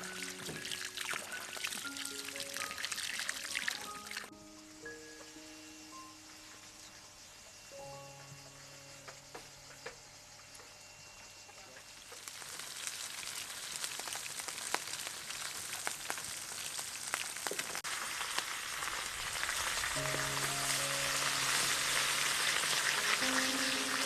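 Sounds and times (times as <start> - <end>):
fish sizzling in hot oil: 0.0 - 4.3, 11.9 - 24.0
soft music: 0.0 - 10.7, 19.9 - 24.0.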